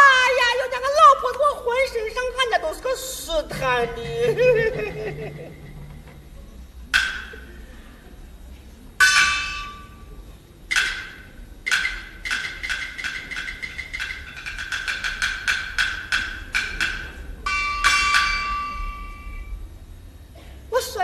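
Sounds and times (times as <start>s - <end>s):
opera percussion strikes ringing: 3.5s - 7.7s, 9.0s - 19.7s.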